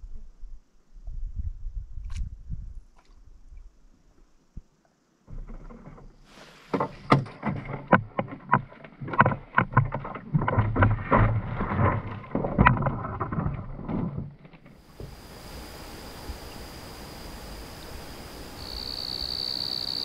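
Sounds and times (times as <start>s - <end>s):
water noise: 2.0s - 20.0s
knocks against canoe hull: 6.7s - 14.3s.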